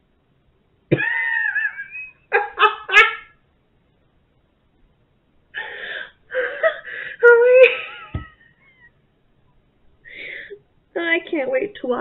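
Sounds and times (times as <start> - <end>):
woman laughing: 0.9 - 3.3, 6.3 - 8.9.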